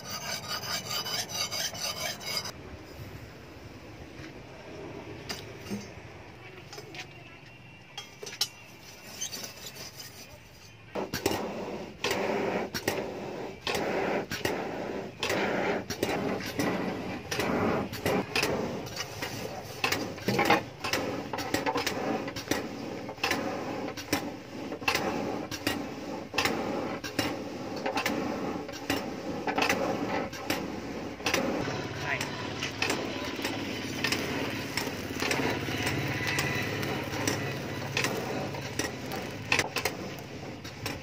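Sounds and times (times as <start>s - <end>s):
air blower whirring: 11.0s - 41.0s.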